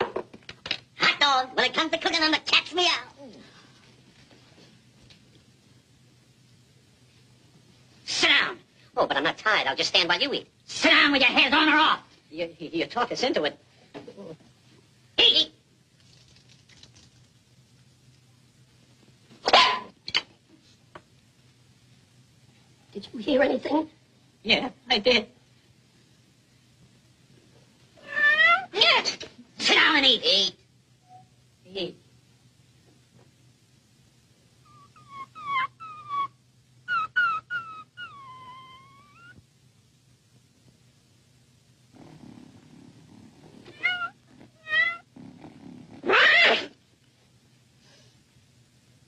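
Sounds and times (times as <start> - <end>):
dog barking: 19.5 - 19.9
cat meowing: 28.0 - 28.7, 36.9 - 39.4, 43.7 - 45.1.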